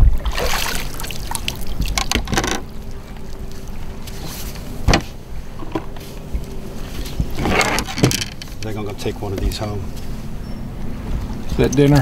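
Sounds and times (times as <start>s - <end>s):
faint steady hum: 0.0s - 12.0s
handling knocks in boat: 1.8s - 2.7s, 4.2s - 6.4s, 7.2s - 9.6s.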